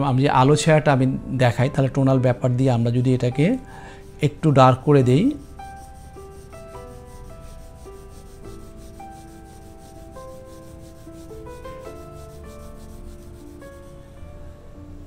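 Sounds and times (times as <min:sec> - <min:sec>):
soft keyboard background music: 0:00.0 - 0:15.0
pencil scratching on paper: 0:04.0 - 0:14.0.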